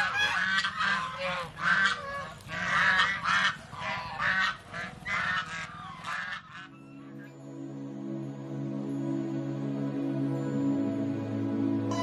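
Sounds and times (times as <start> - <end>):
geese honking: 0.0 - 7.4.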